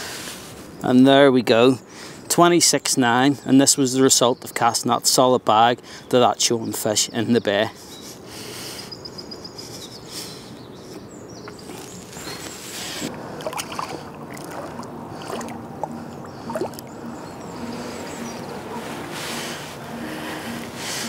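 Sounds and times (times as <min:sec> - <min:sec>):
water sloshing and splashing: 0:13.0 - 0:18.0.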